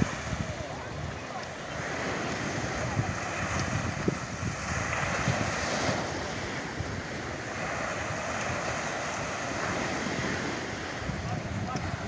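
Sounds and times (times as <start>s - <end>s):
small waves breaking on beach: 0.0s - 12.0s
wind buffeting microphone: 0.0s - 12.0s.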